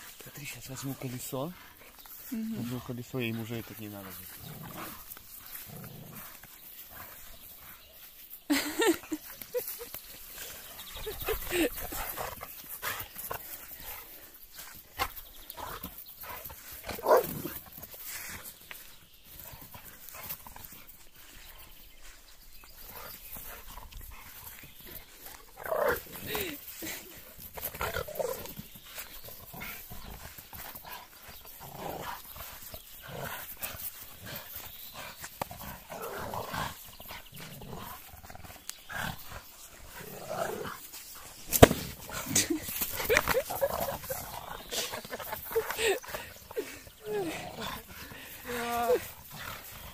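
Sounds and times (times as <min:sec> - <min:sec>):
dogs vocalizing: 0:08.8 - 0:17.6, 0:22.8 - 0:49.9.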